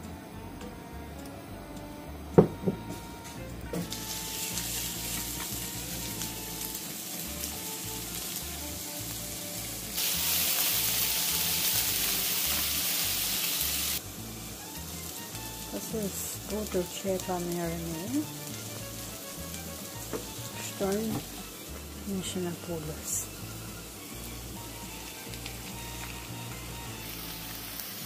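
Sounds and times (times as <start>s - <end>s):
light background music: 0.0s - 28.0s
onions sizzling in a frying pan: 2.9s - 28.0s.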